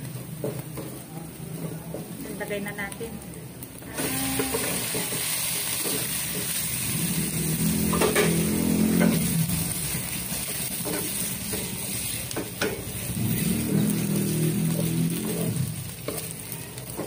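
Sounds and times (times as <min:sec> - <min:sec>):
hot oil sizzling in a wok: 0:00.0 - 0:17.0
spatula stirring and scraping pan: 0:04.3 - 0:17.0.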